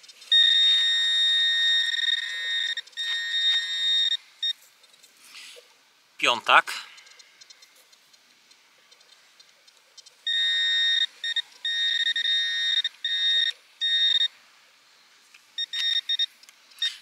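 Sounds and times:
high electronic tone: 0.3 - 4.2
short beeps: 0.3 - 4.6, 10.3 - 14.3, 15.6 - 17.0.

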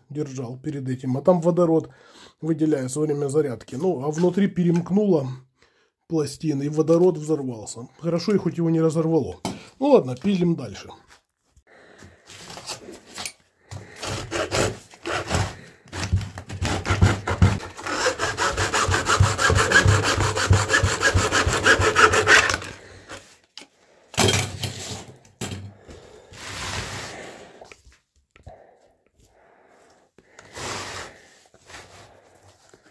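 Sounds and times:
hacksaw cutting plastic: 12.4 - 23.2.

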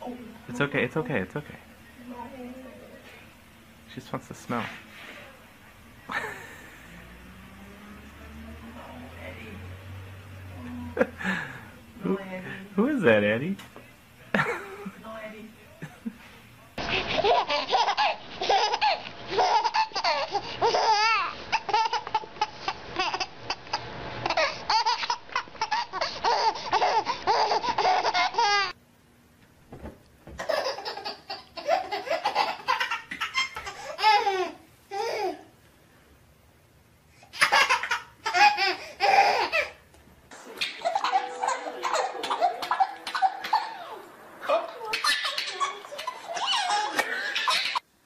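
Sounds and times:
babies laughing: 16.9 - 28.8, 30.4 - 35.5, 37.2 - 47.9.

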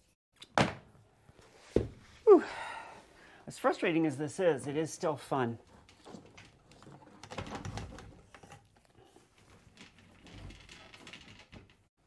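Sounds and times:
clicks and rustles of handling cables: 5.6 - 11.9.

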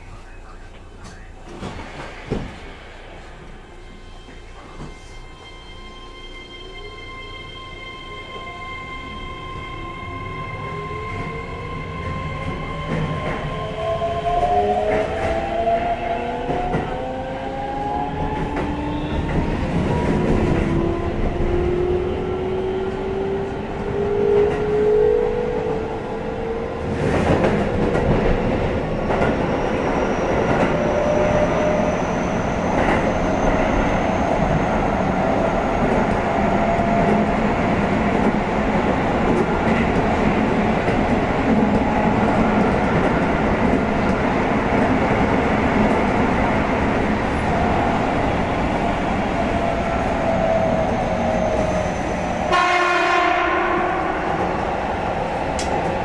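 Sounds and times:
wheels rumbling on rail: 11.0 - 56.0.

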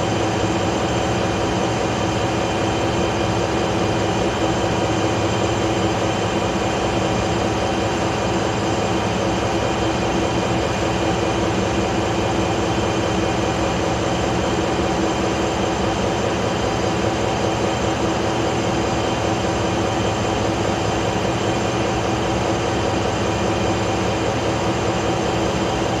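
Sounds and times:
diesel generator engine running: 0.0 - 26.0.

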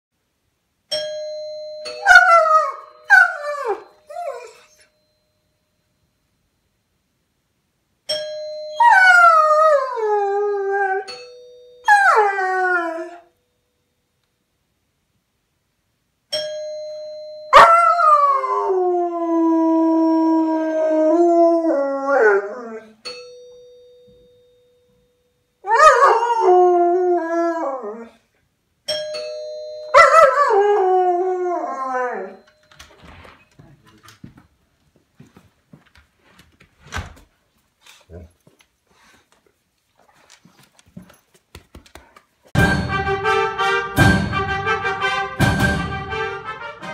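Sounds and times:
two-note doorbell chime: 0.9 - 6.7, 8.1 - 9.7, 10.7 - 14.1, 16.3 - 18.5, 23.0 - 25.6, 28.9 - 30.8.

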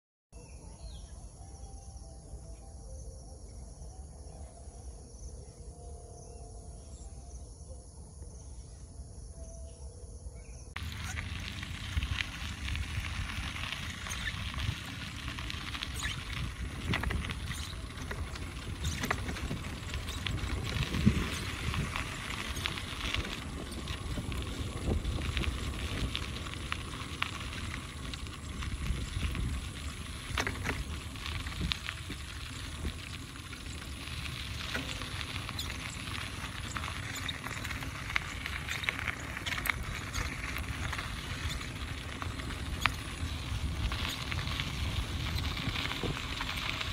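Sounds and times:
low rumble and hiss: 1.0 - 46.9
crackles and clicks: 10.7 - 46.9.

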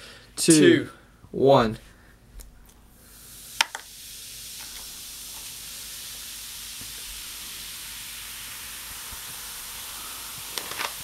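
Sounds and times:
bubbles fizzing: 3.1 - 11.0.

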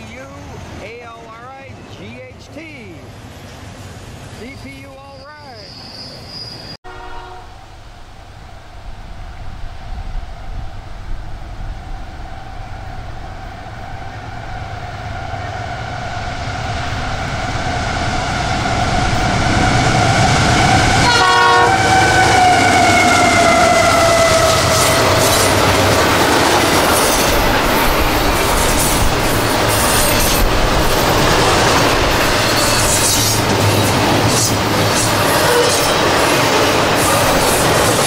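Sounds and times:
locomotive air horn: 6.8 - 7.7, 20.6 - 25.3
train wheels rumbling and clattering: 8.9 - 38.0.

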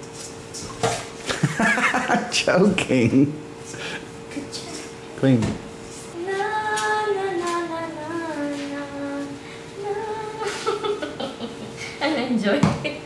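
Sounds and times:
steady hum: 0.0 - 13.0
woman singing long notes: 6.2 - 10.9.

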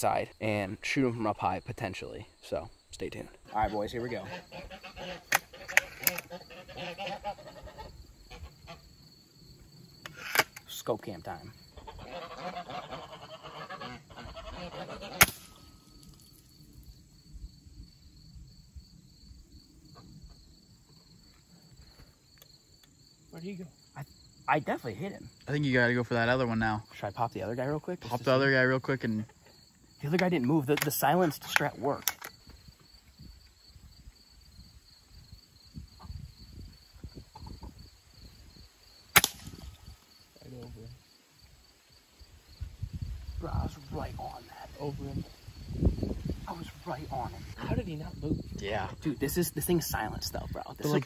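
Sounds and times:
cricket trill: 0.0 - 51.0
geese honking: 3.5 - 8.9, 11.8 - 15.3
pellet rifle shot: 15.2 - 15.7, 39.2 - 39.8.

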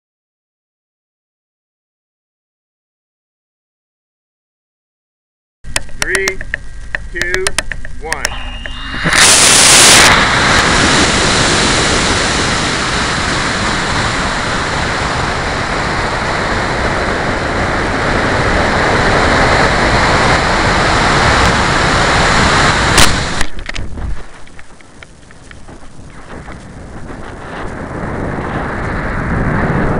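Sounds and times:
rushing air and rocket motor: 8.3 - 24.6
ejection charge pop: 22.9 - 23.8.

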